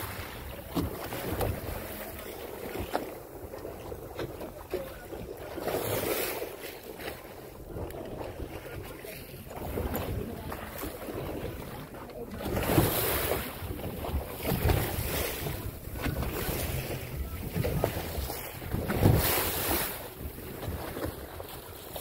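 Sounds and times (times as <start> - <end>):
seawater splashing on hull: 0.0 - 22.0
wind buffeting microphone: 7.6 - 22.0.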